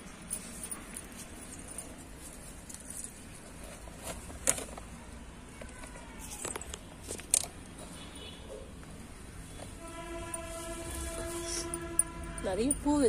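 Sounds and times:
plants rustling: 0.3 - 5.1.

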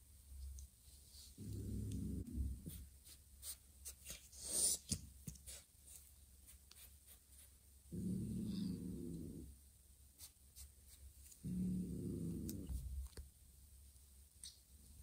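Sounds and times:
cat's low rumble: 1.2 - 2.9, 7.9 - 9.6, 11.4 - 13.2.

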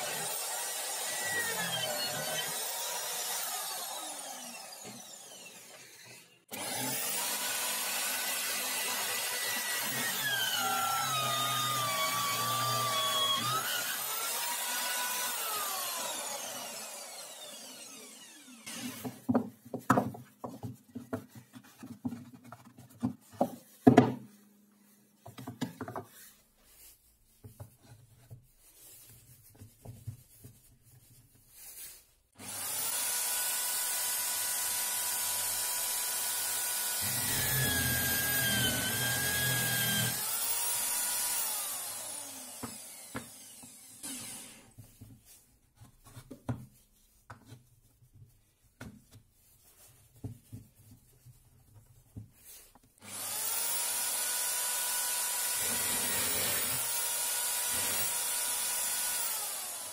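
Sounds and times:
electric drill whining: 0.0 - 19.2, 32.4 - 44.7, 53.0 - 59.9.

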